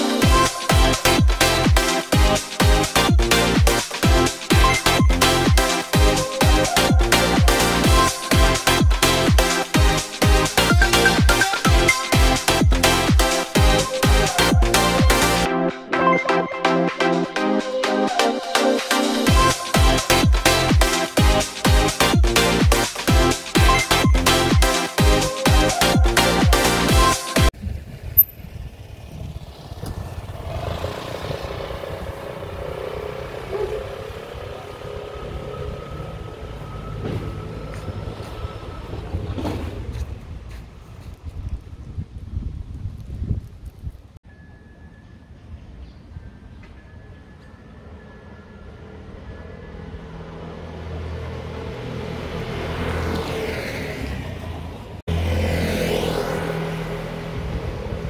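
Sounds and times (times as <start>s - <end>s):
scooter engine passing by: 28.0s - 40.5s, 47.6s - 58.0s.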